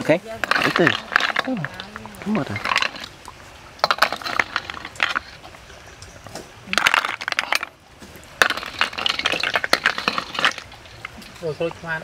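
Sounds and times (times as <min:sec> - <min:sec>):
snail shells clinking on metal: 0:00.3 - 0:03.2, 0:08.4 - 0:11.1.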